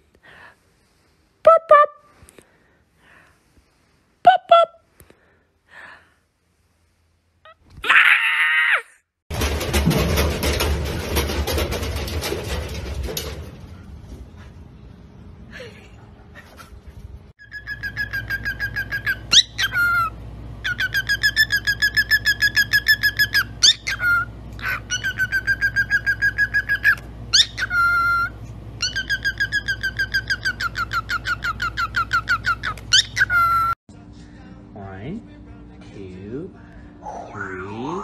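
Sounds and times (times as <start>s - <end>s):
cockatiel whistles: 17.4s - 20.1s
cockatiel chirping: 17.4s - 33.7s.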